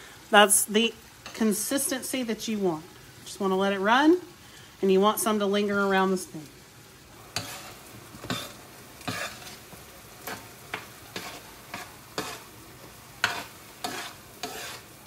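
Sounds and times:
pan sizzling faintly: 0.0s - 15.0s
spoon scraping a pan: 7.3s - 15.0s.

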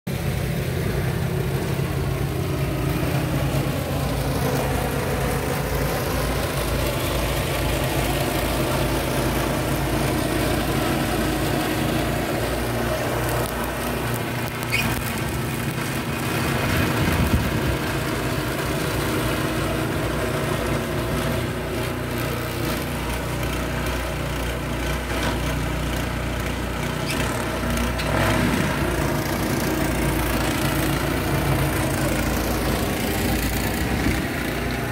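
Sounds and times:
snowblower engine running: 0.1s - 34.9s.

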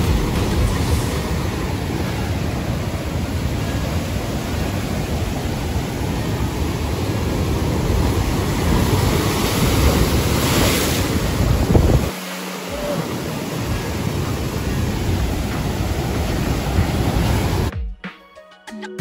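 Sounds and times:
wind buffeting microphone: 0.0s - 12.1s
ocean surf surging over rocks: 0.0s - 17.7s
wave breaking in loud splash: 0.0s - 17.7s.

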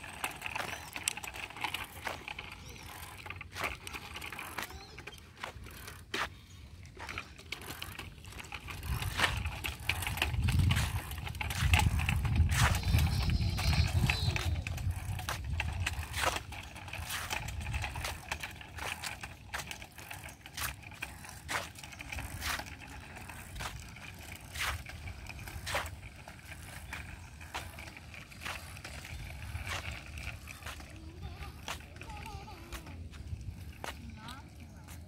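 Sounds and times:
wind rumble on microphone: 8.7s - 18.2s.

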